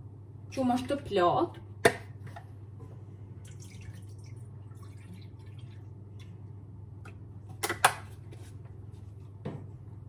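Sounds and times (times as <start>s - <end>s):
low steady hum: 0.0s - 10.0s
milk pouring into pot: 3.4s - 7.3s.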